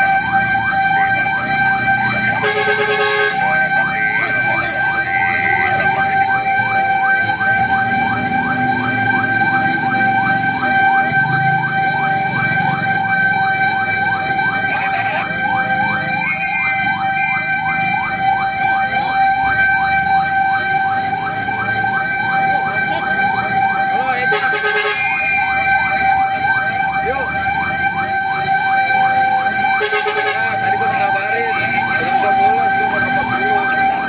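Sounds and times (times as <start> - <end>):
electronic siren yelping: 0.0 - 34.0
truck engine and road noise: 0.0 - 34.0
horn blast: 2.2 - 3.8, 24.3 - 25.2, 29.7 - 30.6.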